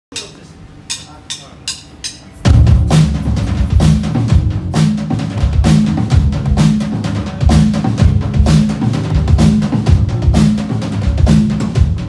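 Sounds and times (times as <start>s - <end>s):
drum kit beat: 0.1s - 12.0s
bass and electric guitar riff: 2.5s - 12.0s.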